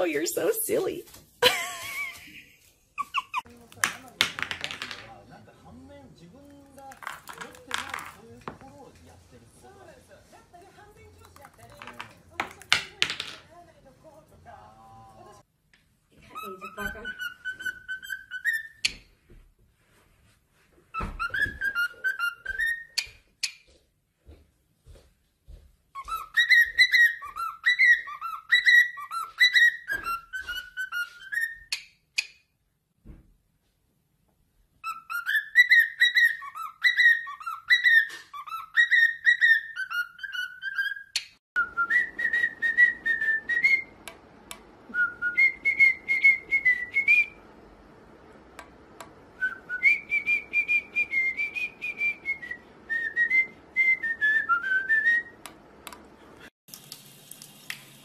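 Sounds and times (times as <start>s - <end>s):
cockatiels whistling: 16.3s - 19.0s, 21.0s - 23.1s, 26.0s - 31.8s, 34.8s - 44.0s, 44.9s - 47.4s, 49.4s - 55.4s
faint steady hiss: 55.2s - 58.0s.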